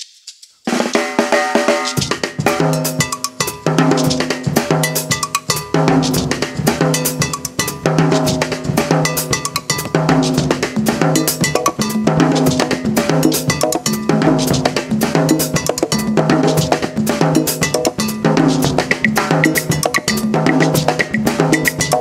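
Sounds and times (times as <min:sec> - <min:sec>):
drum kit groove: 0:00.0 - 0:22.0
cowbell-like block hits: 0:09.0 - 0:10.2, 0:15.2 - 0:22.0.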